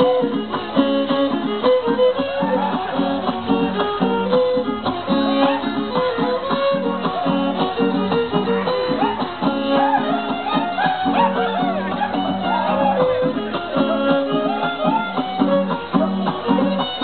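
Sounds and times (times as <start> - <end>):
fiddle playing a melody: 0.0 - 17.0
strummed guitar: 0.0 - 17.0.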